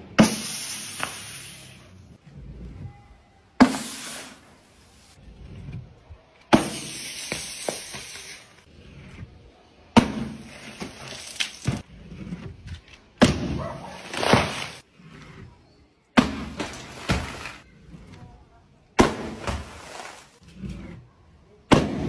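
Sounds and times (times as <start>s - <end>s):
plastic bottles bursting on wood: 16.2s - 17.6s.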